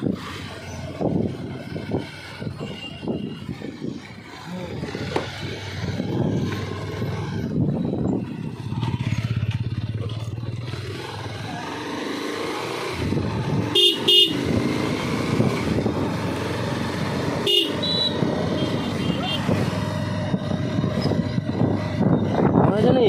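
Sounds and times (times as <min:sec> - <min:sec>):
motorcycle engine running: 0:00.0 - 0:23.0
horn beeps: 0:17.5 - 0:19.6.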